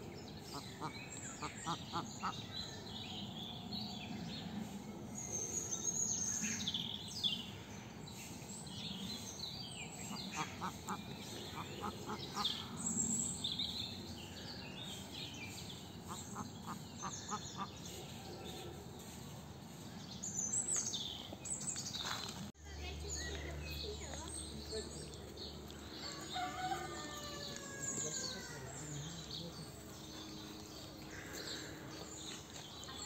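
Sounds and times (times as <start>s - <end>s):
small birds chirping: 0.0s - 33.0s.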